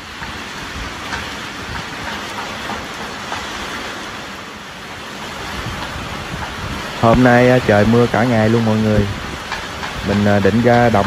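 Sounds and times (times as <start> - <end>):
heavy rain hissing: 0.0 - 11.0
raindrops ticking: 5.7 - 11.0.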